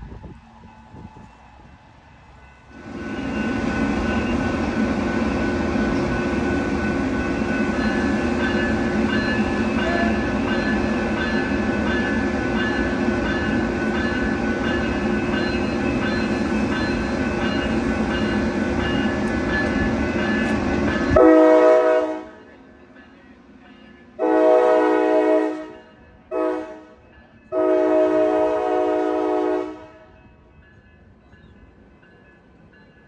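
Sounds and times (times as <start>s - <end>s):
train rumbling past: 0.0s - 33.0s
train horn blasts: 21.1s - 22.5s, 24.2s - 30.2s.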